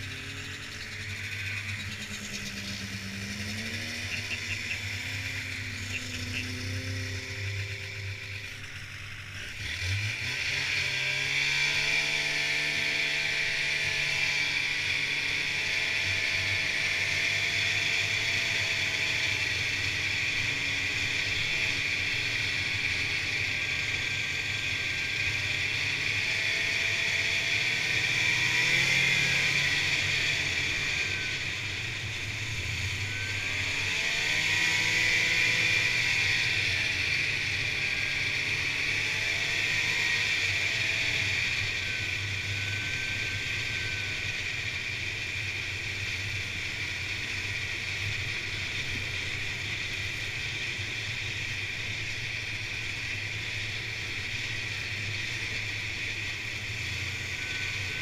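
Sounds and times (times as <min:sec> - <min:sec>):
track noise: 0:00.0 - 0:08.8
snowmobile engine running: 0:00.0 - 0:58.0.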